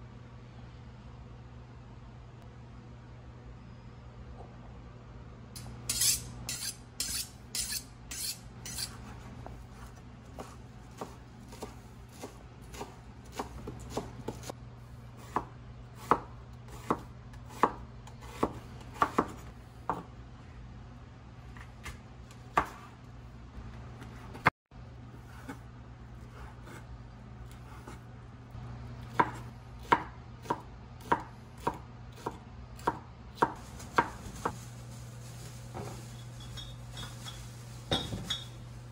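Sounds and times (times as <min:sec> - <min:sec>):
knife chopping on cutting board: 0:10.3 - 0:14.5, 0:15.2 - 0:20.1, 0:21.6 - 0:22.9, 0:27.5 - 0:28.0, 0:29.1 - 0:34.6.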